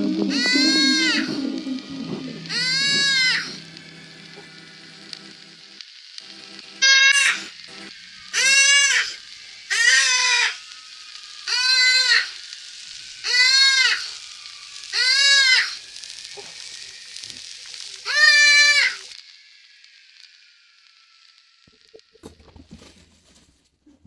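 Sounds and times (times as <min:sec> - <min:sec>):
steady hiss: 0:00.0 - 0:23.5
deer bleating in distress: 0:00.2 - 0:01.6, 0:02.4 - 0:03.6, 0:09.7 - 0:10.6, 0:11.5 - 0:12.3.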